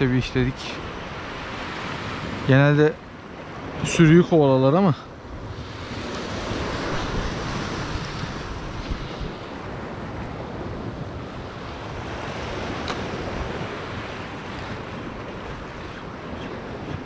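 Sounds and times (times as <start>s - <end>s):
surf washing against rocks: 0.0s - 17.0s
wind buffeting microphone: 5.1s - 17.0s
sharp click: 12.8s - 13.1s.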